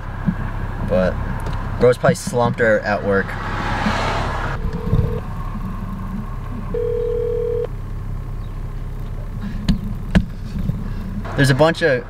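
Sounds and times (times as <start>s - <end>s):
low steady rumble: 0.0s - 12.0s
phone ringback tone beeps: 4.6s - 5.2s, 6.7s - 7.7s.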